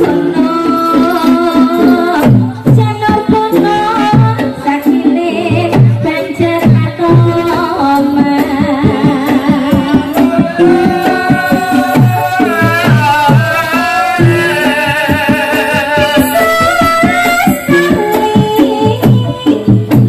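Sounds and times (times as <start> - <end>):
hand drums beating: 0.0 - 20.0
person singing with vibrato: 0.0 - 20.0
gamelan notes: 10.1 - 19.1.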